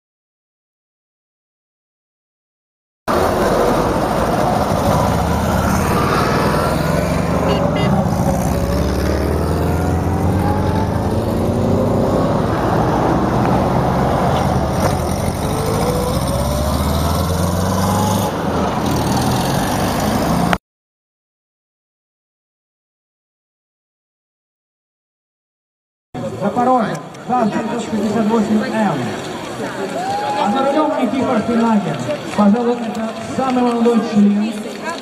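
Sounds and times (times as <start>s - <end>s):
car engine accelerating: 3.1s - 20.6s.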